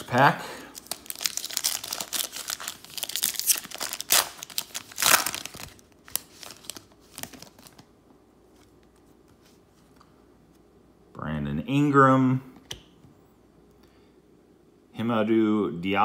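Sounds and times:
cards rustling: 0.7s - 7.9s
foil wrapper tearing and crinkling: 0.8s - 7.9s.

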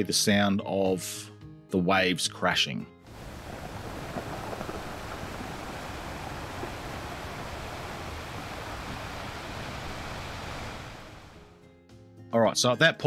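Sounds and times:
waves crashing on rocky beach: 3.1s - 11.4s.

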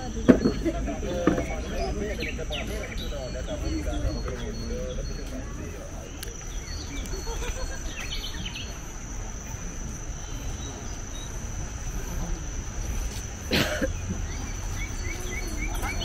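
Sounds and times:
crowd walking on a path: 0.0s - 16.0s
high-pitched insect drone: 1.8s - 16.0s
person coughing: 13.5s - 13.9s.

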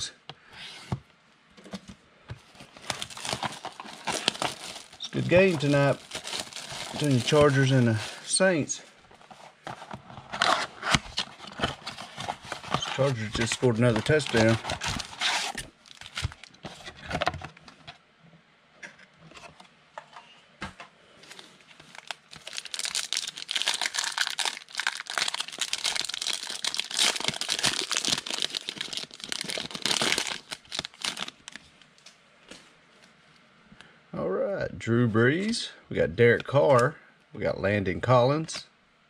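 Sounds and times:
foil wrapper crinkling: 2.7s - 8.3s, 10.3s - 16.6s, 21.7s - 31.7s.

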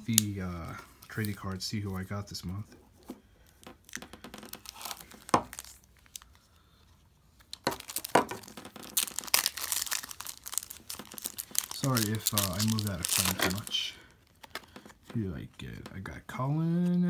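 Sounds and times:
plastic pouch tearing crackle: 3.8s - 6.4s, 7.4s - 14.6s.

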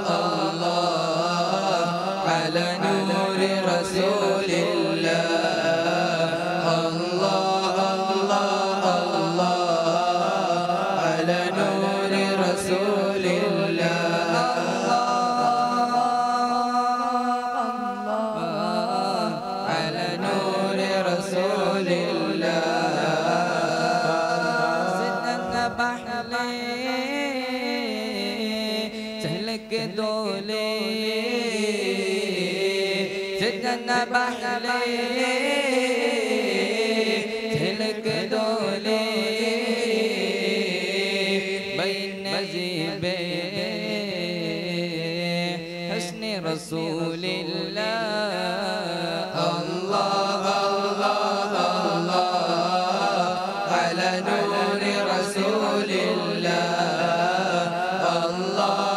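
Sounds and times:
boys singing into microphones: 0.0s - 58.9s.

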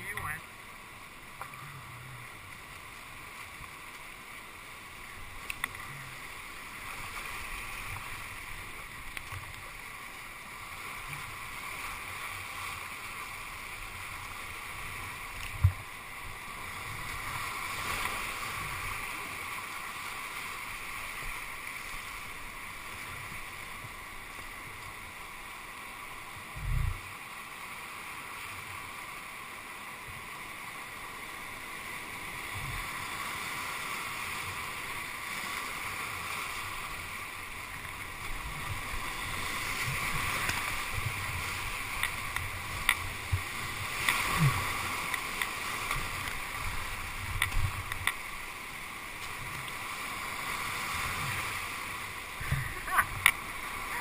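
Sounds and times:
rushing whitewater: 0.0s - 54.0s
water splashes and knocks: 37.8s - 48.5s, 52.4s - 54.0s.

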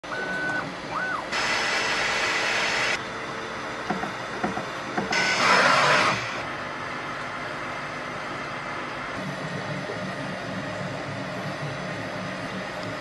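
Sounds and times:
stepper motor whine: 0.0s - 4.4s, 5.1s - 12.7s
fans rushing hiss: 0.2s - 3.0s.

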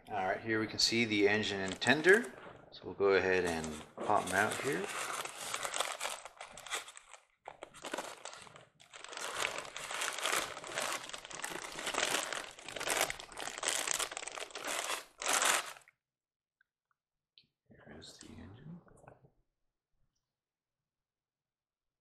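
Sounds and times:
plastic wrapping crinkling: 1.4s - 2.3s, 3.3s - 15.9s.

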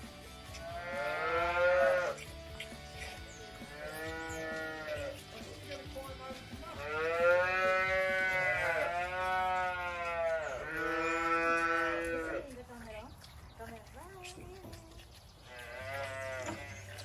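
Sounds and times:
calves mooing: 0.4s - 2.4s, 3.0s - 5.4s, 6.7s - 12.6s, 15.4s - 17.0s.

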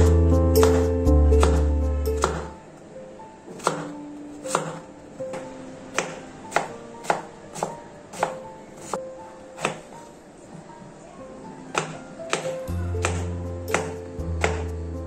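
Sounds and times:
background music: 0.0s - 15.0s
knife chopping on wooden board: 0.6s - 2.5s, 3.5s - 9.0s, 9.6s - 9.9s, 11.7s - 14.7s.

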